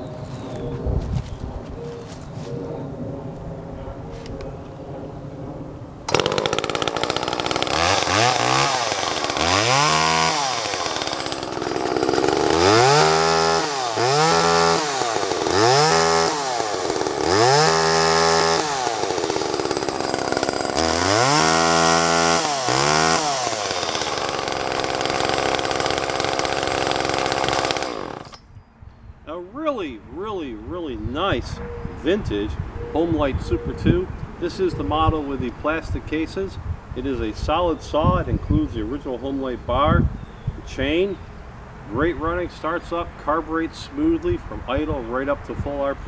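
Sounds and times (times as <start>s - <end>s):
chainsaw idling and revving: 6.1s - 28.4s.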